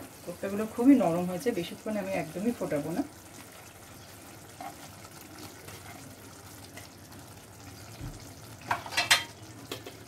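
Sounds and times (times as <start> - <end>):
gravy simmering in frying pan: 0.0 - 10.0
kitchen utensils clattering: 8.6 - 10.0.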